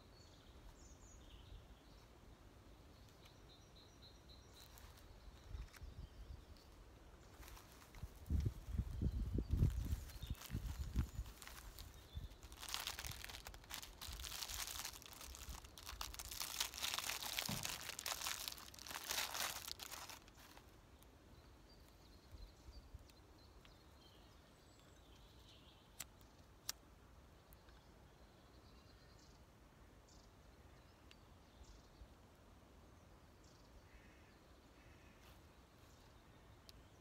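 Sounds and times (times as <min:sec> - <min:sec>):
faint high bird chirps: 0:02.8 - 0:20.6
cloth bag and wrappings rustling: 0:09.5 - 0:20.6.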